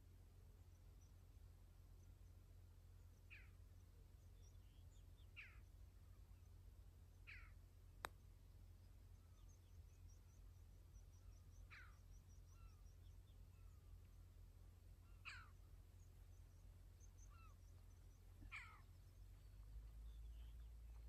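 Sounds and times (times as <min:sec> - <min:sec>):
distant falling bird call: 0:17.2 - 0:19.6.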